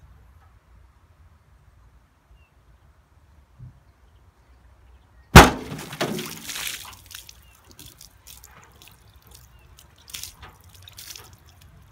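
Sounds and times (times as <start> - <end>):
bottle bursting underwater: 5.4 - 6.9
water dripping: 5.4 - 11.9
water splashing: 5.4 - 11.9.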